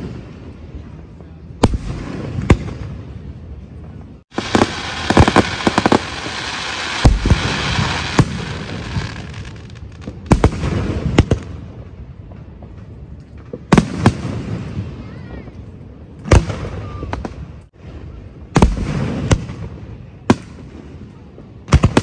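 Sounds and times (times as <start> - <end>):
fireworks bangs: 0.0 - 15.6, 16.2 - 22.0
rapid fireworks pops: 3.9 - 15.5, 18.5 - 22.0
fireworks hiss: 4.3 - 11.0.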